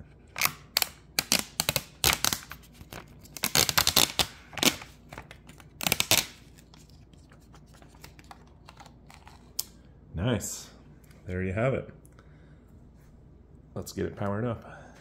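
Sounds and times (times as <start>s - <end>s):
plastic film peeling and crinkling: 0.4s - 9.6s.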